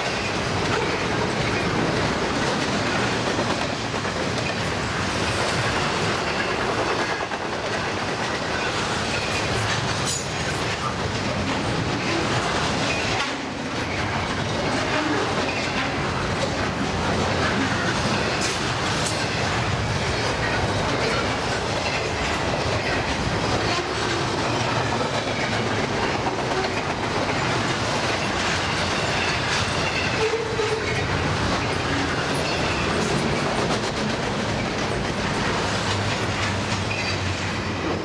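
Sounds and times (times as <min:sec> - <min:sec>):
freight train wheels clattering: 0:00.0 - 0:38.0.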